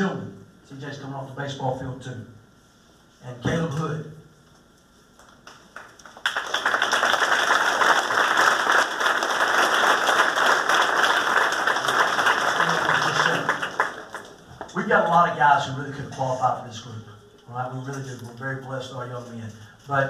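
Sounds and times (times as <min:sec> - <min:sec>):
audience applauding: 0:05.4 - 0:14.7.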